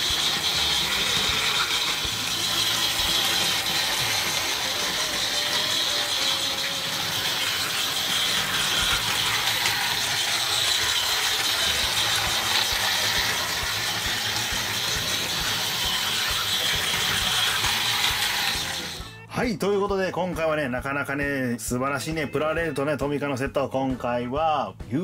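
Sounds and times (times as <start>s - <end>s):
wheels clicking over track: 0.0s - 19.1s
toy train motor whirring: 0.0s - 19.2s.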